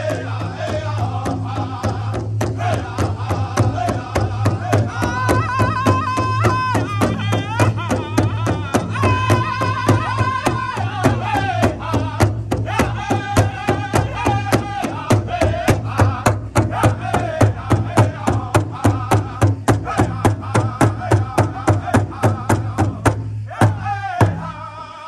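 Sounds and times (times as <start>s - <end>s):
large drum beating: 0.0s - 24.6s
men singing in high voices: 0.0s - 25.0s.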